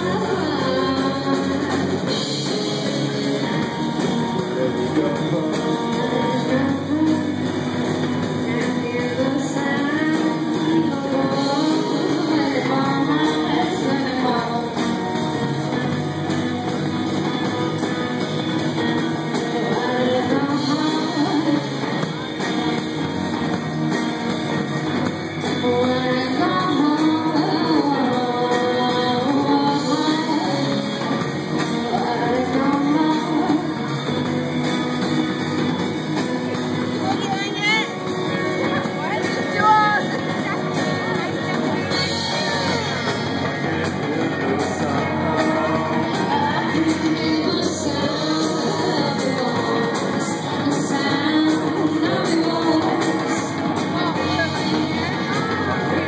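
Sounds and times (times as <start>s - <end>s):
drum kit: 0.0s - 56.0s
electric guitars: 0.0s - 56.0s
woman singing lead: 0.0s - 56.0s.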